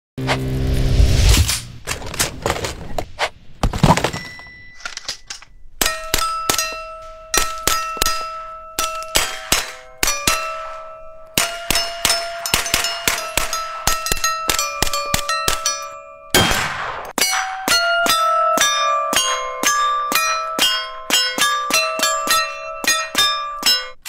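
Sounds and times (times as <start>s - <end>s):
metal targets ringing: 4.0s - 24.0s
rifle shots: 16.4s - 17.2s.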